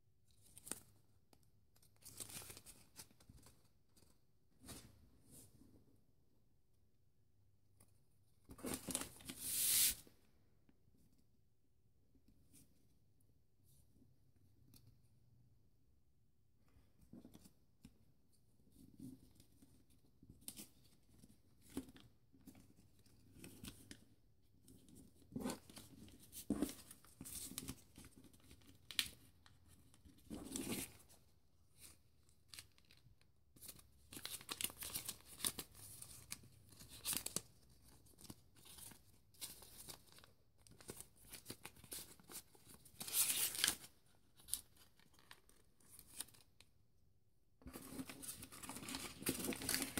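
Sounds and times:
paper rustling and crinkling: 0:33.6 - 0:46.4, 0:47.6 - 0:49.9.

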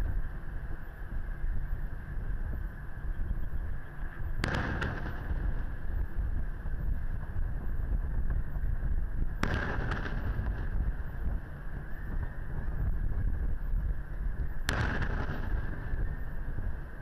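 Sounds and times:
wind rumble on microphone: 0:00.0 - 0:17.0
firework after-cracks: 0:04.4 - 0:05.8, 0:09.4 - 0:10.9, 0:14.6 - 0:16.2.

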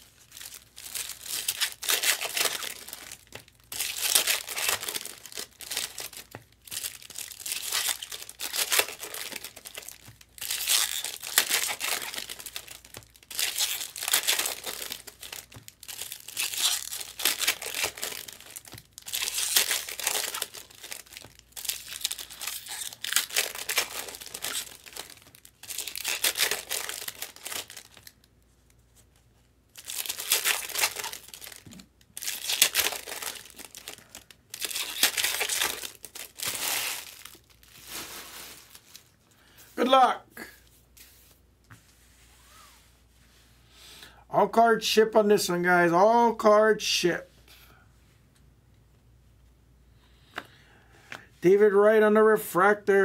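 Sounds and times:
card pack wrappers crinkling and tearing: 0:00.0 - 0:28.4, 0:29.7 - 0:39.2.

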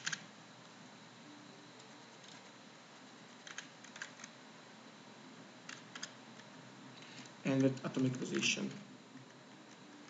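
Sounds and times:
low steady hiss: 0:00.0 - 0:10.0.

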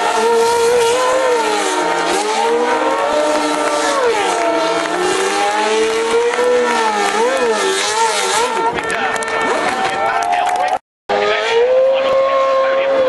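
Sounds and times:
race car engine revving: 0:00.0 - 0:13.0.

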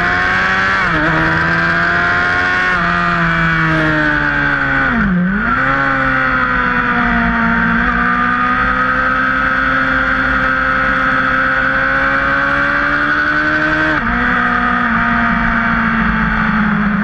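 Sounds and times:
sport bike engine revving: 0:00.0 - 0:17.0.

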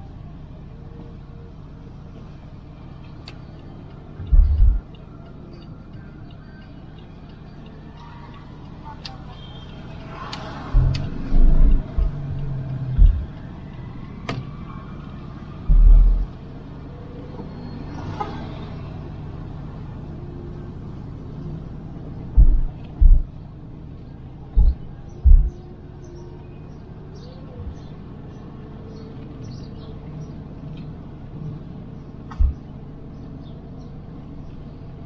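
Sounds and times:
car road rumble: 0:00.0 - 0:35.0
heavy low thumps: 0:04.3 - 0:04.8, 0:10.8 - 0:12.3, 0:12.9 - 0:13.3, 0:15.7 - 0:16.3, 0:22.3 - 0:23.4, 0:24.5 - 0:25.6
sharp clicks: 0:09.0 - 0:13.5.

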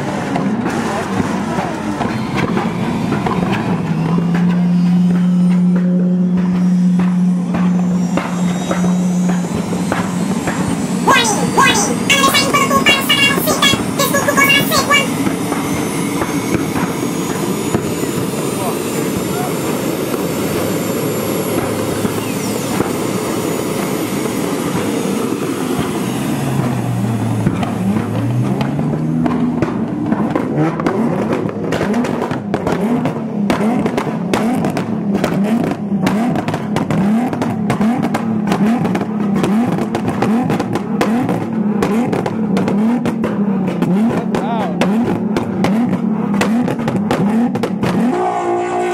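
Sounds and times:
jet engine whining: 0:00.0 - 0:47.0
car engine revving: 0:00.0 - 0:48.9.

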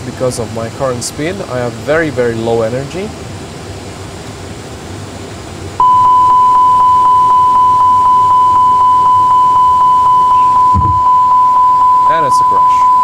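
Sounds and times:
high-pitched warning tone: 0:05.8 - 0:13.0.

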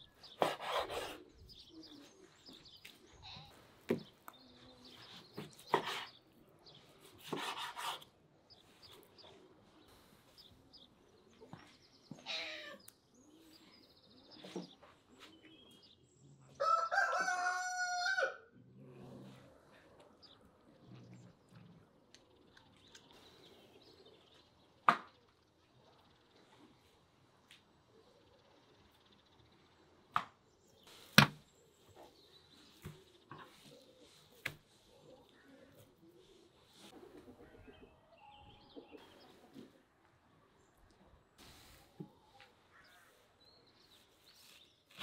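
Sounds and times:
rooster crowing: 0:16.6 - 0:18.5.

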